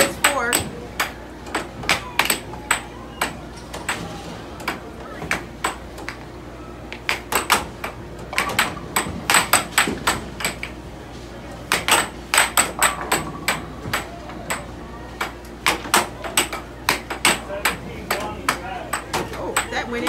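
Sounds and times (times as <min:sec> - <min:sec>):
air hockey puck clacking: 0:00.0 - 0:06.3, 0:06.9 - 0:10.9, 0:11.5 - 0:20.0
steady low hum: 0:00.0 - 0:20.0.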